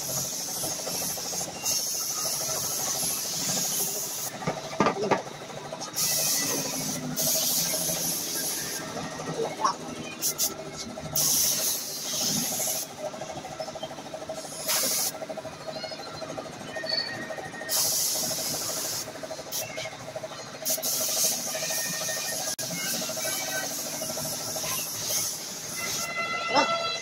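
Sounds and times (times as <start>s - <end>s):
spray gun air hiss: 0.0s - 4.5s, 5.8s - 9.3s, 10.2s - 12.9s, 14.4s - 15.2s, 17.7s - 19.9s, 20.6s - 26.2s.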